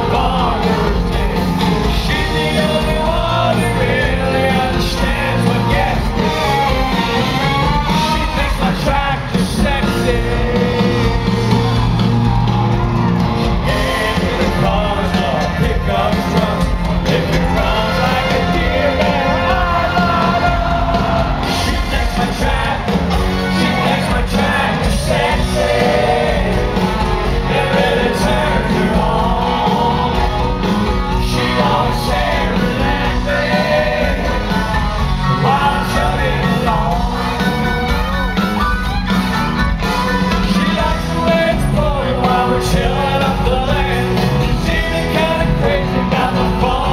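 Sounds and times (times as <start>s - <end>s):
lead singer singing: 0.0s - 37.7s, 40.4s - 46.9s
country band playing: 0.0s - 46.9s.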